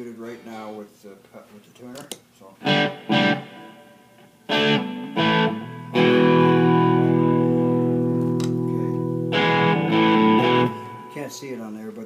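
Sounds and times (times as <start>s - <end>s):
electric guitar strumming chords: 2.6s - 11.6s.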